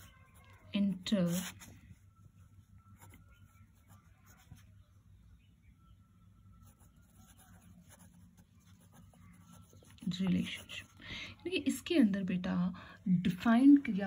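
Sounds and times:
pen scratching on paper: 0:00.0 - 0:01.8, 0:06.6 - 0:11.0.

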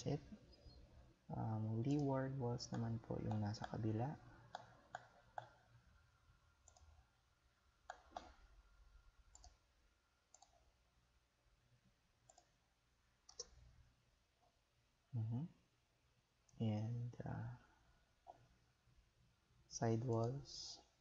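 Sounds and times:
faint computer mouse clicks: 0:01.9 - 0:03.8, 0:09.3 - 0:09.6, 0:10.3 - 0:10.6, 0:12.3 - 0:12.5, 0:13.3 - 0:13.6.

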